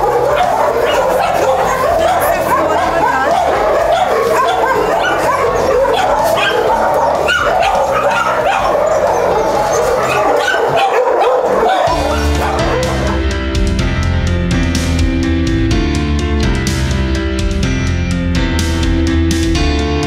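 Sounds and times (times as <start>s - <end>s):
dogs barking and yipping: 0.0s - 13.4s.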